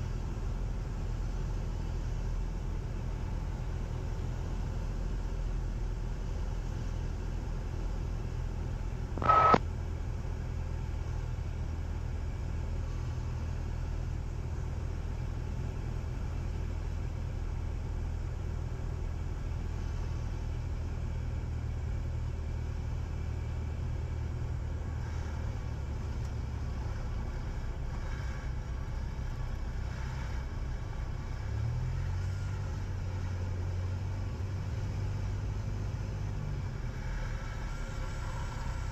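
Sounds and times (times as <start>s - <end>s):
airplane engine droning: 9.0s - 38.9s
brief loud beep: 9.2s - 9.6s.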